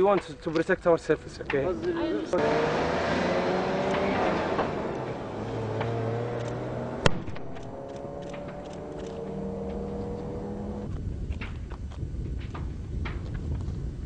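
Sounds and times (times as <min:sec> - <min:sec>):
vehicle engine humming: 0:01.4 - 0:10.9
sharp crack: 0:03.6 - 0:09.3.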